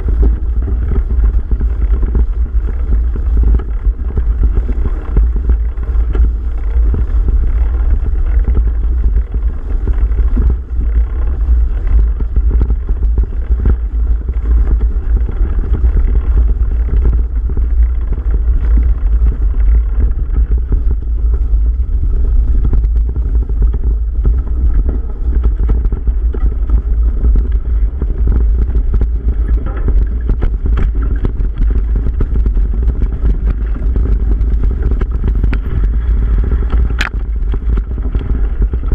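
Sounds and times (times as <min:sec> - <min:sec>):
bike rattling over dirt trail: 0:00.0 - 0:38.9
wind rumble on microphone: 0:00.0 - 0:38.9.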